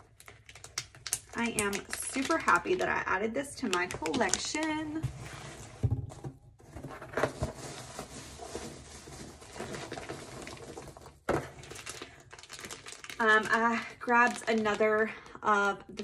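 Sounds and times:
plastic packaging rustling: 0:06.6 - 0:16.0.

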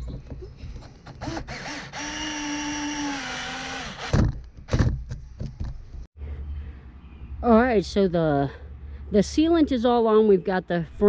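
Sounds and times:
cordless drill driving screw: 0:01.2 - 0:04.2.

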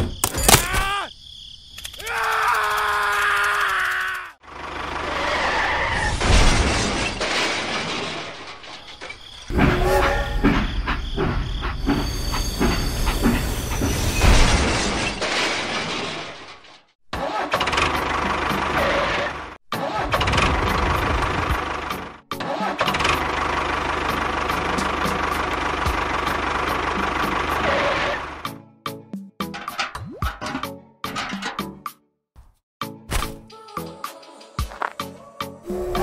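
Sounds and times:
small engine running: 0:22.8 - 0:28.4.

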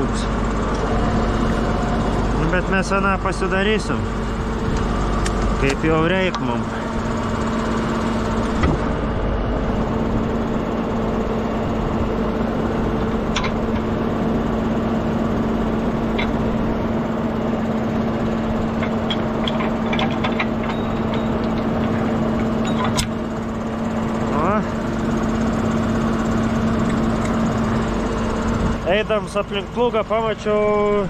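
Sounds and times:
diesel engine idling: 0:00.0 - 0:31.0
sharp clicks and knocks: 0:13.0 - 0:13.9, 0:16.0 - 0:16.4, 0:18.7 - 0:23.2.

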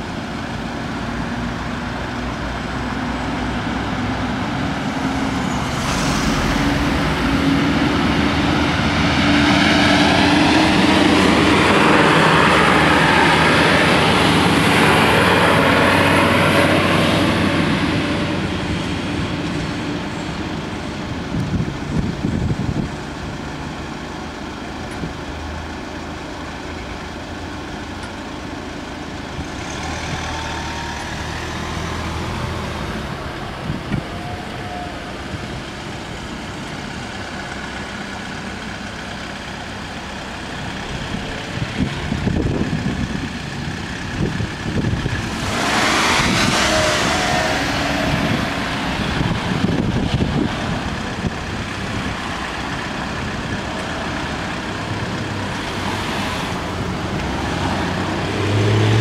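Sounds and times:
cars driving past: 0:00.0 - 0:22.0, 0:29.1 - 0:59.0
vehicle passing close: 0:03.2 - 0:19.4, 0:40.7 - 0:59.0.

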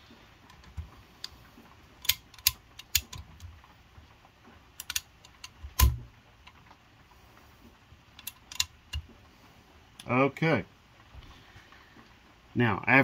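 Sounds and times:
metallic clicks and clinks: 0:08.2 - 0:09.0.

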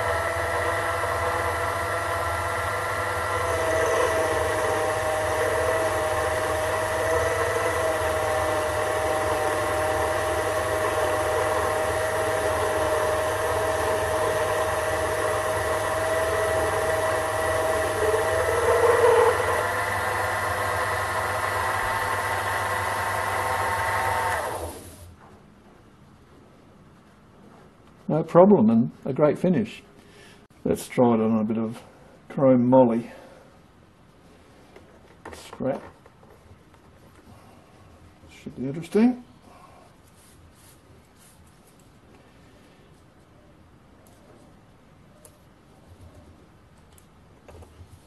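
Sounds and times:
lathe motor whining: 0:00.0 - 0:25.1.

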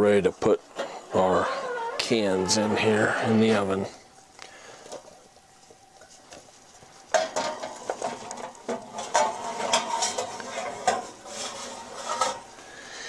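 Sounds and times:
tin cans clinking and scraping: 0:07.2 - 0:12.5.

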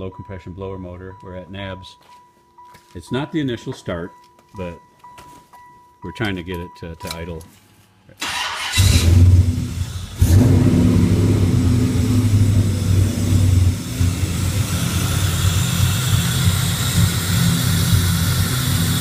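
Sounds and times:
engine starter cranking: 0:08.2 - 0:10.5
car engine revving: 0:08.2 - 0:19.0.

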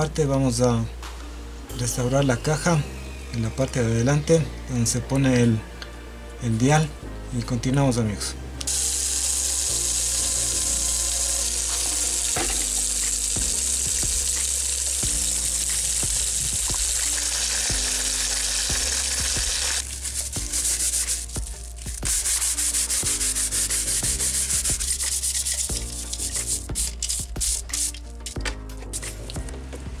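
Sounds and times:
soft background music: 0:00.0 - 0:30.0
scrubbing hiss: 0:08.7 - 0:29.4.

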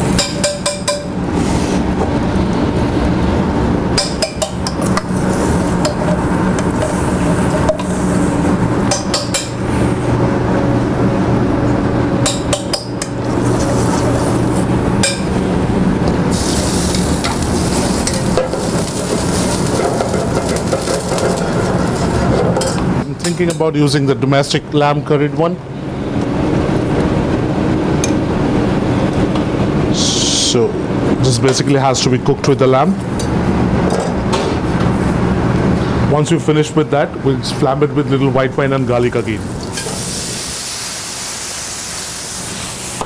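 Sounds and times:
sauce sizzling in a pan: 0:39.9 - 0:43.0.

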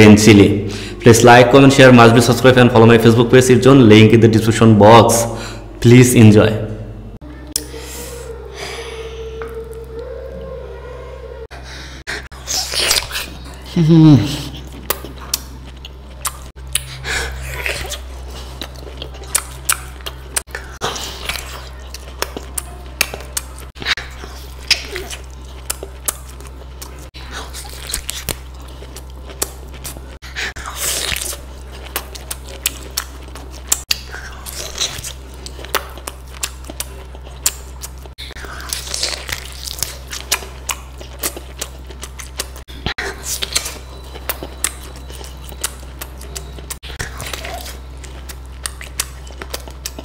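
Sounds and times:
steady low hum: 0:00.0 - 0:50.0
person chewing and crunching: 0:12.2 - 0:50.0.

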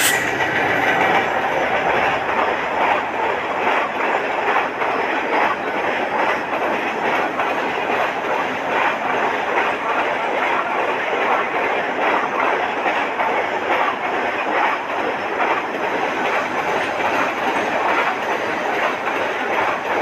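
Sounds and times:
freight train rumbling past: 0:00.0 - 0:20.0
wheels clacking over rail joints: 0:00.0 - 0:20.0.

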